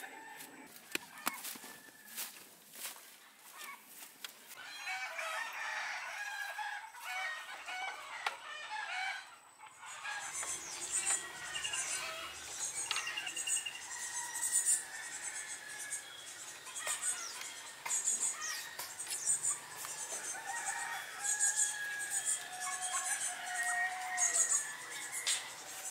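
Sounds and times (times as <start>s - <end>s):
chickens clucking and crowing: 0.0s - 25.9s
high-pitched chirps: 10.2s - 14.8s.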